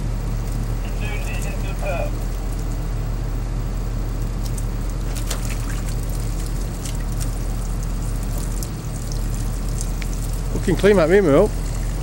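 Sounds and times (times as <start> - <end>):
fluid trickling and dribbling: 0.0 - 3.2, 4.1 - 12.0
drilling rig engine drone: 0.0 - 12.0
small splash ticks: 4.4 - 10.9.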